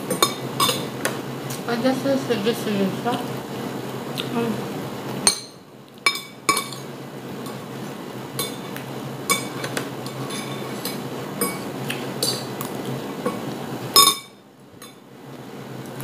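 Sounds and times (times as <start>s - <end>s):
cutlery clinking on ceramic plate: 0.1s - 0.9s, 5.2s - 6.9s, 9.3s - 12.5s, 14.0s - 15.0s.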